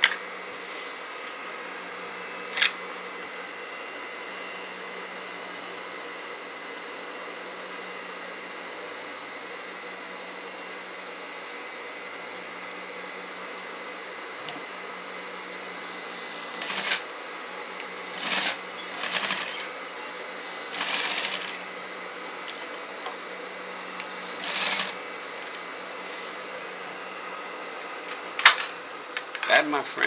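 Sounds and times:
steady hum: 0:00.0 - 0:30.0
sewing machine stitching: 0:16.4 - 0:17.1, 0:18.1 - 0:19.8, 0:20.6 - 0:21.6, 0:24.2 - 0:25.0.

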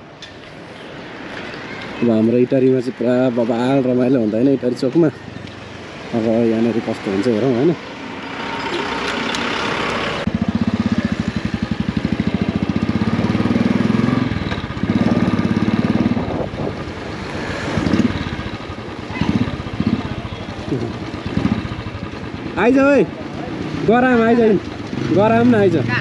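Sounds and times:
motorcycle engine puttering: 0:06.5 - 0:26.0.

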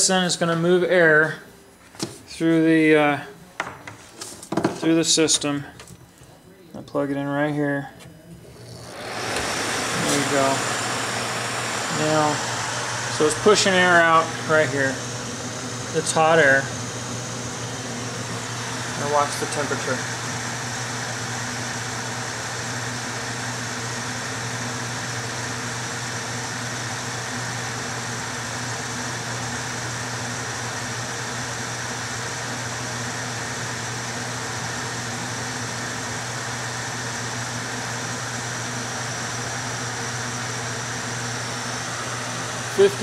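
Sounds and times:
exhaust fan whirring: 0:00.0 - 0:43.0.

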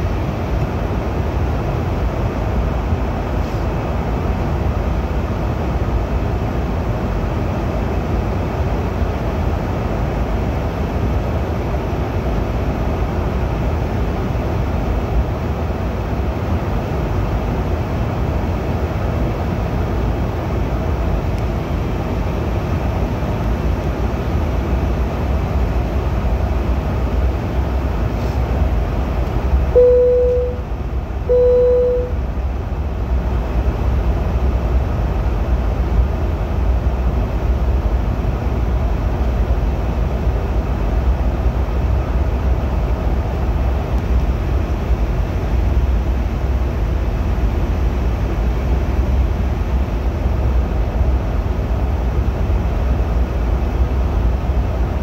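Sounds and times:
airliner cabin rumble and hiss: 0:00.0 - 0:55.0
short cabin chimes: 0:29.8 - 0:30.6, 0:31.3 - 0:32.2.

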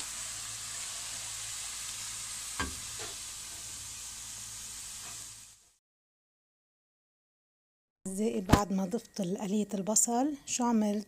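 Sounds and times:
onions sizzling in oil: 0:00.0 - 0:05.8.

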